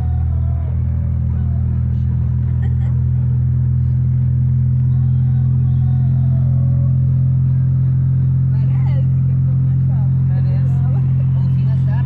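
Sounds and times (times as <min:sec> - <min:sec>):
car cabin road and engine drone: 0:00.0 - 0:12.0.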